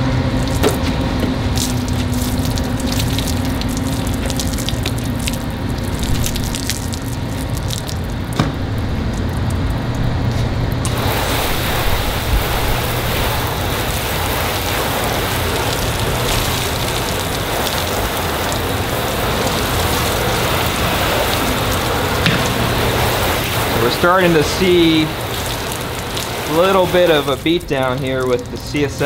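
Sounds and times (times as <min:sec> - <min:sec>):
water drips: 0:00.3 - 0:29.0
hose spray hissing: 0:10.8 - 0:29.0.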